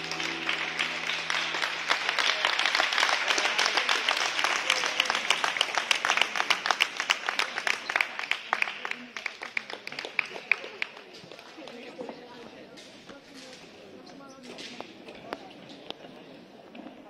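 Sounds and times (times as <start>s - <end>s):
program music: 0.0s - 3.0s
small audience applauding: 0.0s - 11.8s.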